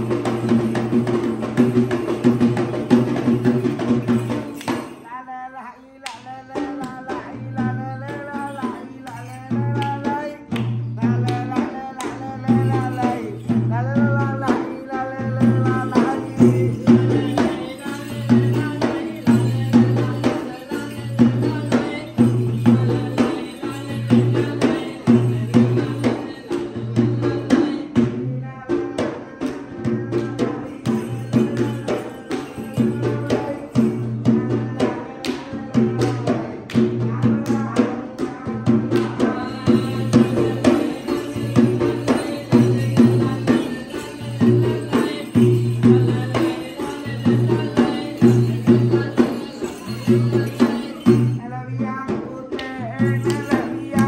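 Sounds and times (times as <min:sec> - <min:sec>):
hand drum fast strokes: 0:00.0 - 0:05.0, 0:29.9 - 0:51.4.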